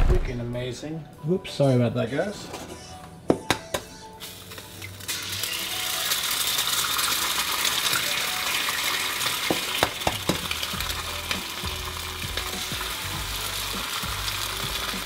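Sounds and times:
eggs sizzling in a pan: 4.2 - 15.0.

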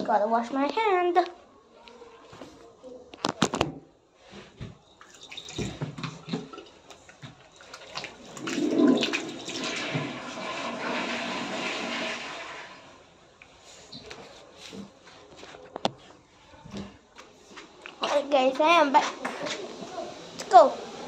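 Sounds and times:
toilet flushing water rushing: 7.8 - 13.1.

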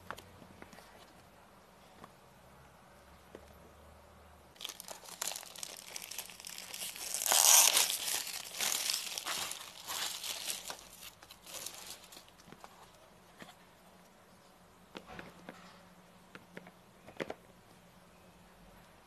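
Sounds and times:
plastic wrap crinkling: 4.6 - 13.0.

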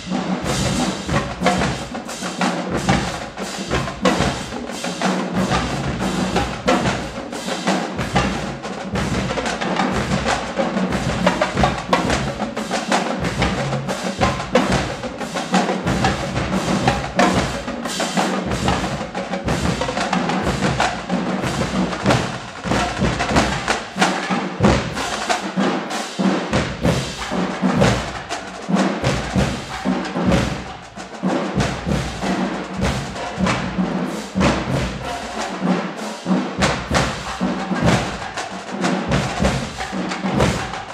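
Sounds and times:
cymbals: 0.0 - 40.9
snare drums: 0.0 - 40.9
tenor drums: 0.0 - 40.9.

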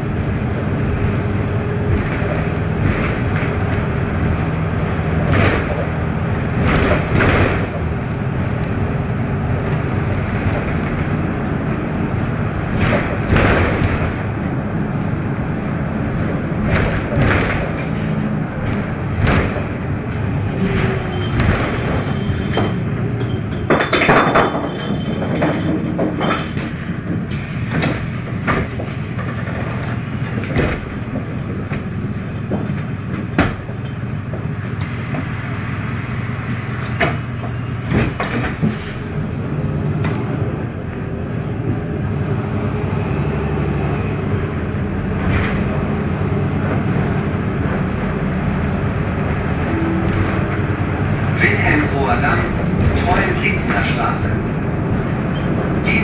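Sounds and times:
bus body clicks and rattles: 0.0 - 42.5, 44.0 - 56.0
bus engine and road drone: 0.0 - 56.0
loud clatter: 9.6 - 27.2.

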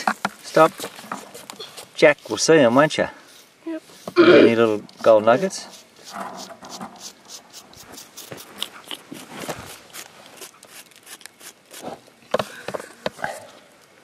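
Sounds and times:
gravel crunching on a sieve: 7.4 - 12.0.

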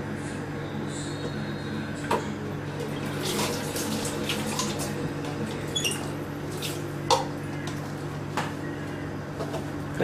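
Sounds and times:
water pouring into a sink: 2.9 - 5.0.

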